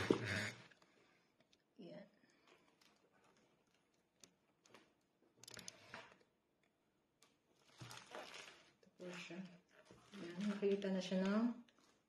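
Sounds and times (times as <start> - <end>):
small clicks: 5.4 - 5.8
packaging rustling: 7.2 - 12.0.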